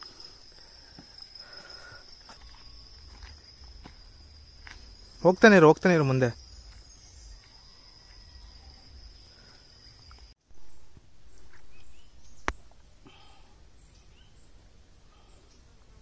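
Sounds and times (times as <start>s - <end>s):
high-pitched insect trill: 0.0s - 12.5s.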